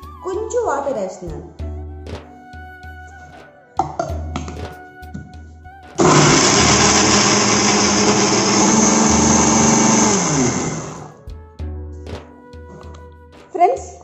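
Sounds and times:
mixer grinder motor: 6.0 - 11.2.

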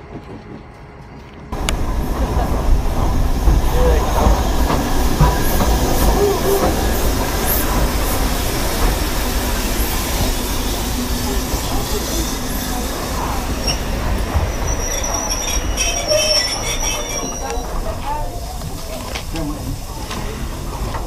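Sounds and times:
train wheels rumbling on rail: 0.0 - 21.0
faint wheel squeals: 10.5 - 18.6.

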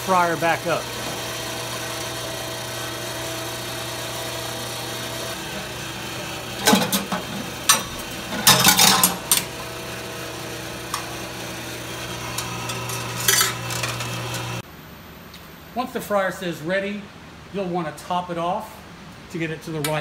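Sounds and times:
pump motor humming: 0.0 - 14.6
metal clanks and scrapes: 6.6 - 9.5, 12.4 - 14.1.

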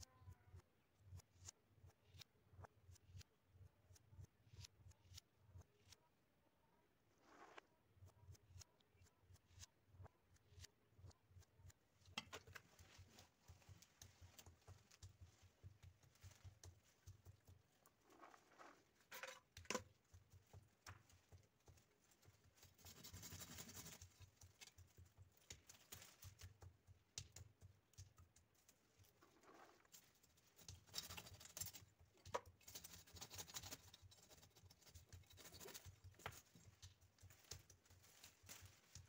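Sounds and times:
twigs and leaves rustling: 32.8 - 39.0.

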